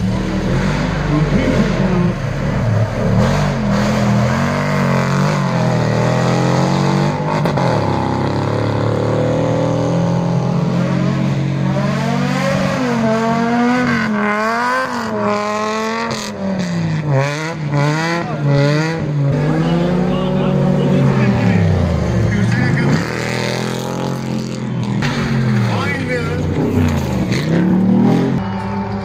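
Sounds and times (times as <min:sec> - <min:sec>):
off-road engine revving: 0:00.0 - 0:29.0.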